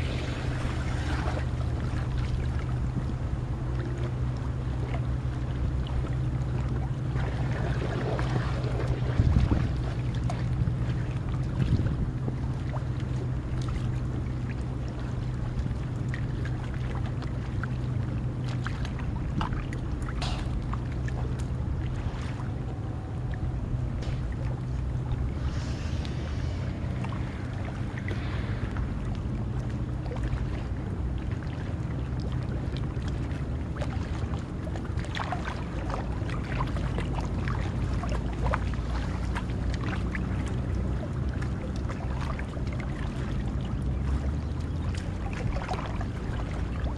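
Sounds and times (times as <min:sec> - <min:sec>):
steady low hum: 0:00.0 - 0:46.9
water drips and splashes: 0:00.0 - 0:46.9
water lapping on rocky shore: 0:00.0 - 0:46.9
wind rumble on microphone: 0:00.0 - 0:46.9.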